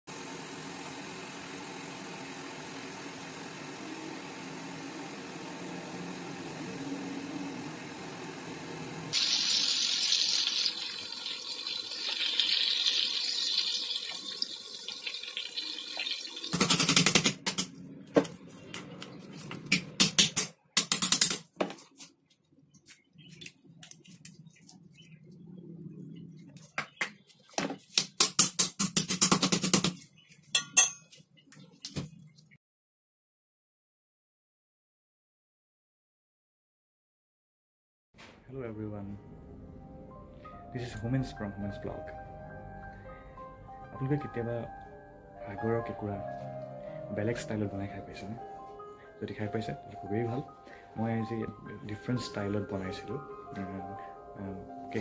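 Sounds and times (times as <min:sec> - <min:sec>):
crab frying in hot oil: 0:07.4 - 0:17.0.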